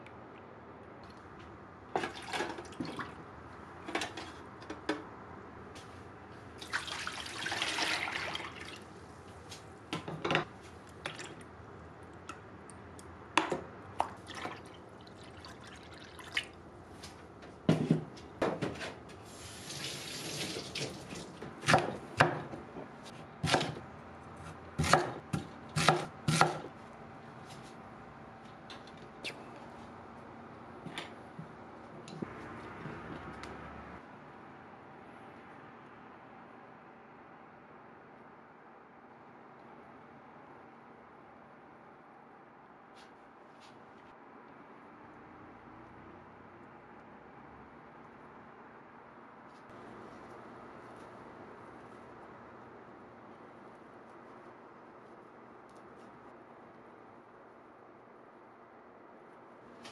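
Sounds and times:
knife chopping on wooden board: 21.6 - 22.6, 23.4 - 23.8, 24.8 - 26.7.

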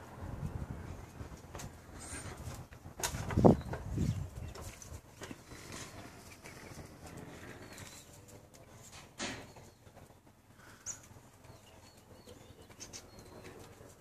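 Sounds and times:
light wind: 0.0 - 14.0
faint bird calls: 9.3 - 14.0.

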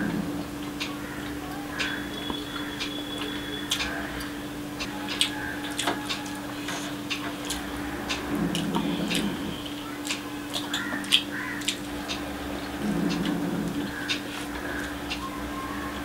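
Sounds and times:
low steady hum: 0.0 - 16.0
wet chewing clicks and smacks: 2.2 - 6.4, 7.1 - 15.2.

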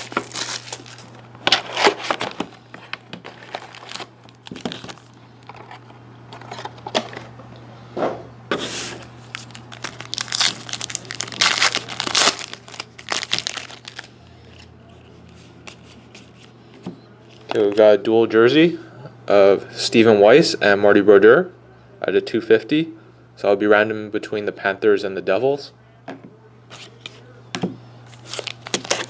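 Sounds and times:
foil wrappers crinkling: 0.0 - 7.2, 9.2 - 14.6, 28.1 - 29.0.

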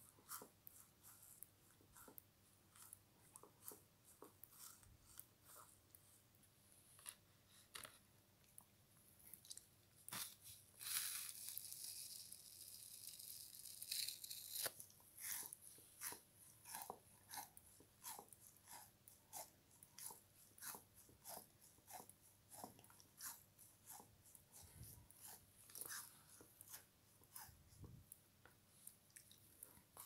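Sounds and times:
frozen sponge crunching: 10.1 - 18.2.

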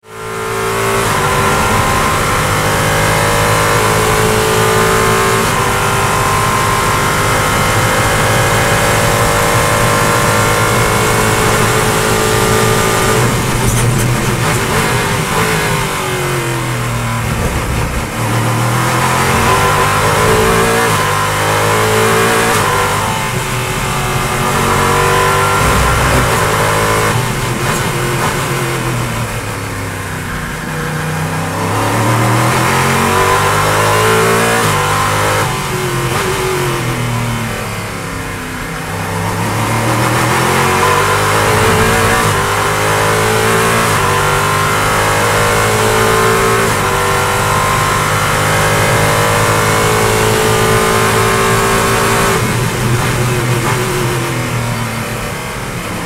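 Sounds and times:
racing car engine revving: 0.0 - 56.0.

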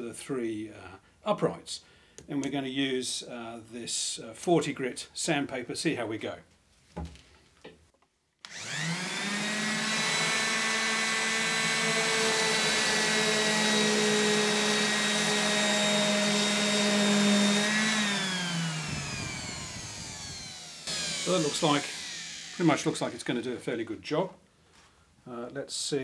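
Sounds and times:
orbital sander running: 8.5 - 23.5.

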